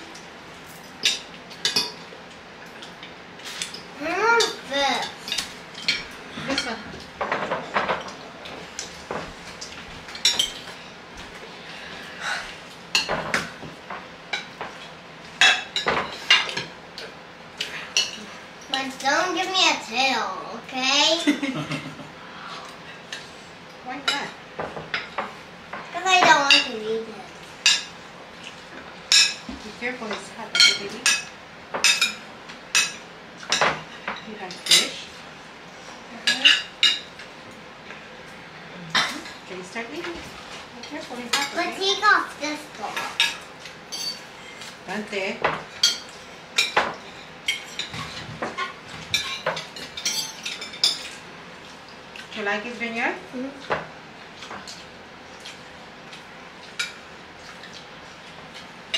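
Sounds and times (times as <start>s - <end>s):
forks clinking on ceramic plates: 43.0s - 44.3s, 45.8s - 51.2s.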